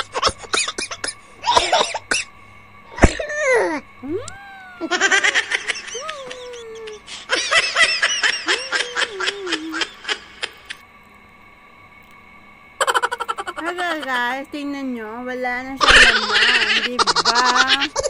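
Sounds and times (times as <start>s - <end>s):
faint steady hum: 0.0s - 18.0s
high-pitched giggling laughter: 3.0s - 10.8s, 12.8s - 14.1s, 15.8s - 18.0s.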